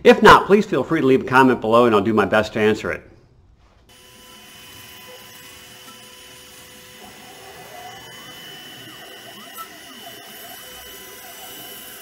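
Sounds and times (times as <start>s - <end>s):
cnc router high whine: 3.9s - 12.0s
rising and falling tones: 6.9s - 12.0s.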